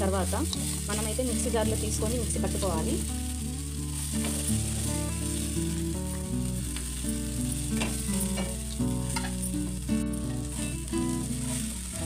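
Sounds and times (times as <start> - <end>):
background music with bass: 0.0 - 12.0
vegetables sizzling in a pan: 0.0 - 12.0
wooden spatula scraping a pan: 0.1 - 12.0.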